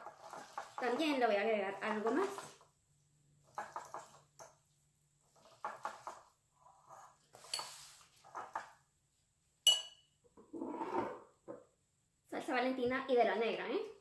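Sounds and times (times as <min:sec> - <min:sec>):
fork scraping in a bowl: 0:00.0 - 0:01.0, 0:05.4 - 0:08.6
fork clinking in bowl: 0:09.7 - 0:10.0.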